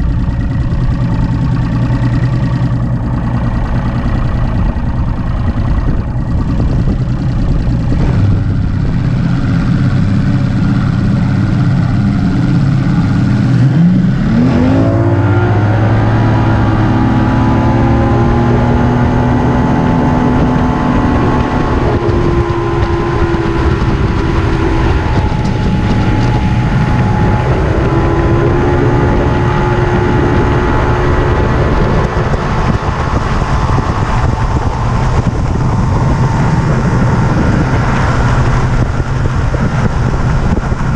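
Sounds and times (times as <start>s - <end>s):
outboard engine revving: 0.0s - 40.9s
wind: 0.0s - 40.9s
water rushing: 7.0s - 13.6s, 19.8s - 40.9s.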